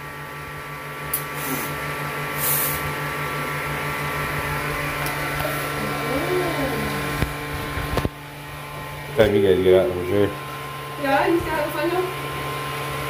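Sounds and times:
small electric motor humming: 0:00.0 - 0:13.0
bursts of hiss: 0:01.1 - 0:02.9.

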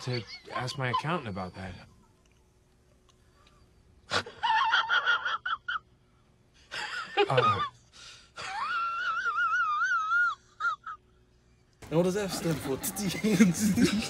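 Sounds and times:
squeaky whining: 0:00.0 - 0:04.0.

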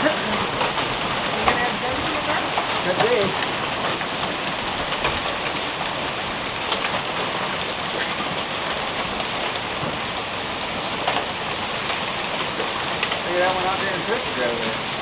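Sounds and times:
hail pelting down: 0:00.0 - 0:15.0
hailstones clicking: 0:00.0 - 0:15.0.

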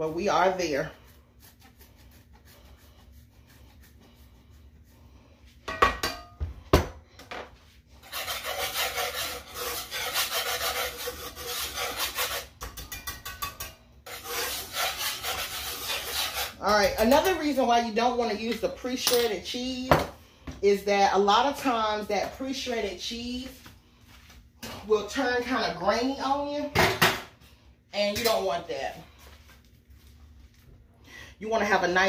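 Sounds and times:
cheese rasping on a grater: 0:00.0 - 0:04.6, 0:08.0 - 0:12.6, 0:14.1 - 0:16.7.

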